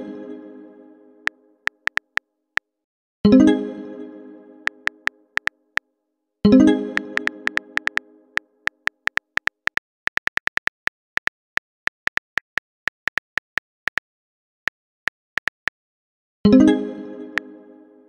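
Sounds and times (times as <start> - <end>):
phone keyboard typing clicks: 1.7 - 2.2, 4.7 - 5.5, 7.0 - 8.0, 8.7 - 14.0, 14.6 - 15.8.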